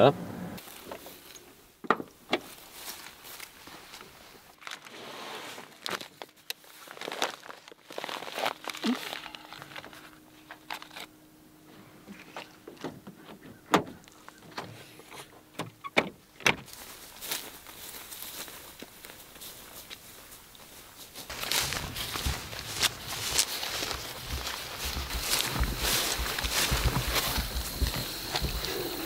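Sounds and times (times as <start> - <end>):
gear clicks and knocks: 21.3 - 29.0.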